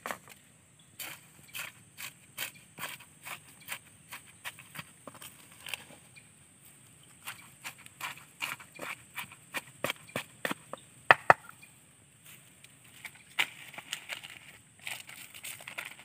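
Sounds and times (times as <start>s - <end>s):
chopping knocks: 11.1s - 11.5s.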